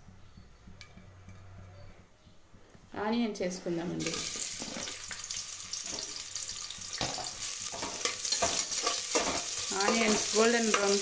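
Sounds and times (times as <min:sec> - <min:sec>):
onions sizzling in hot oil: 0:04.0 - 0:11.0
spoon scraping and knocking pot: 0:06.9 - 0:11.0.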